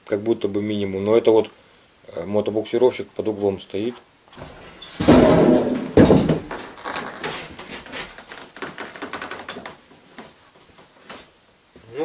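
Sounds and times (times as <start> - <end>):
heavy thumps on wooden floor: 4.4 - 6.8.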